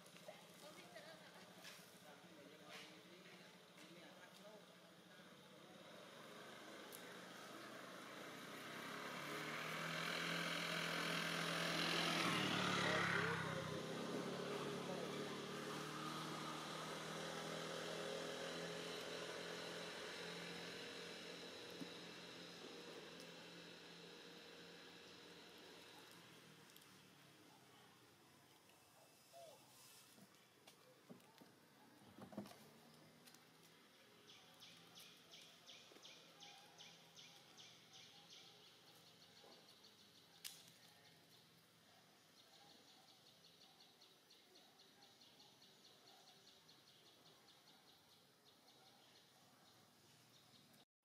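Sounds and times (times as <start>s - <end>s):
faint engine hum: 0.0s - 50.8s
faint outdoor ambience: 0.0s - 50.8s
bird chirping: 34.0s - 41.6s.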